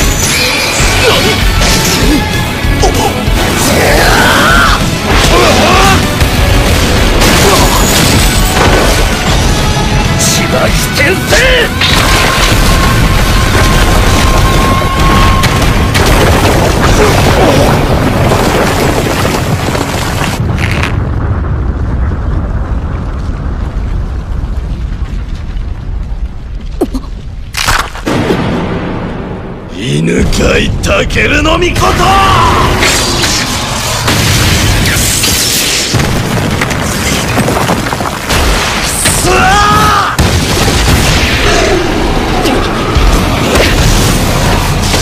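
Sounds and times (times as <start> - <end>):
background music: 0.0 - 13.5
crumbling debris: 0.0 - 29.0, 31.2 - 45.0
explosion booming rumble: 3.2 - 10.8, 11.7 - 45.0
crash: 4.8 - 10.7.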